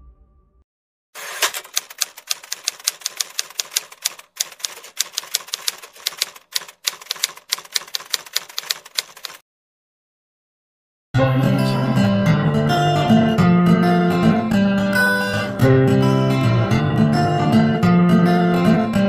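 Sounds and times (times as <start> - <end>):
typewriter key clacks: 1.2 - 9.4.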